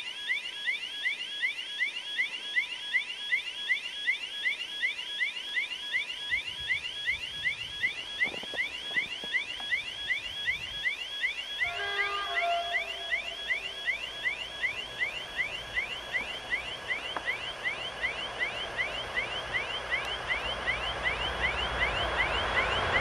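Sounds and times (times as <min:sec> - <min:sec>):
faint steady tone: 0:00.0 - 0:23.0
railway warning signal chirps: 0:00.0 - 0:23.0
diesel train rumble: 0:20.1 - 0:23.0.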